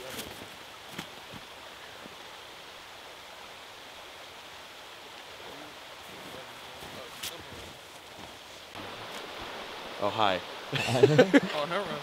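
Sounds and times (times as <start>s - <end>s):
soft footsteps in snow: 0.0s - 2.1s, 6.0s - 9.5s
stream flowing: 0.0s - 12.0s.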